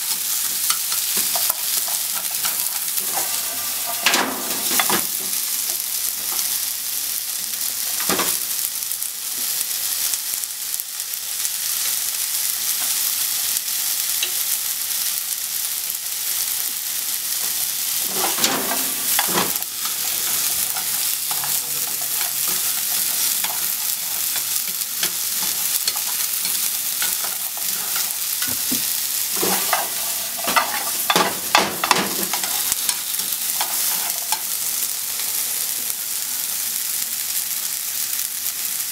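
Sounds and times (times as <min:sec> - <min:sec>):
onions sizzling in a frying pan: 0:00.0 - 0:38.9
chopsticks scraping a pan: 0:00.1 - 0:05.1, 0:17.4 - 0:34.6.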